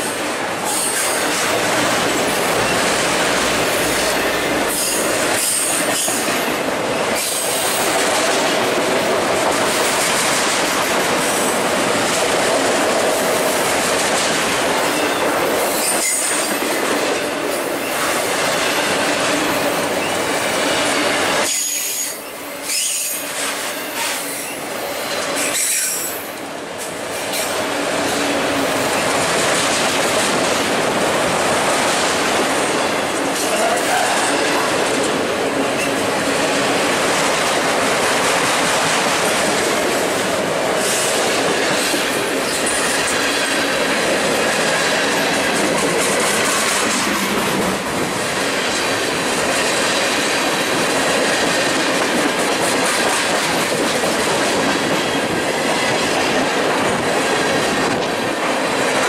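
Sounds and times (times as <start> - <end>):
steel wheels rolling on rails: 0.0 - 59.0
high wheel squeals: 21.4 - 23.2.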